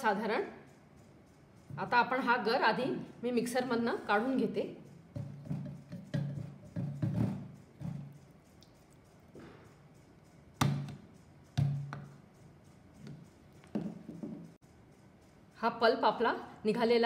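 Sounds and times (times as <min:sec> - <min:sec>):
spatula knocking on metal jar: 0:05.0 - 0:08.4, 0:10.6 - 0:12.3.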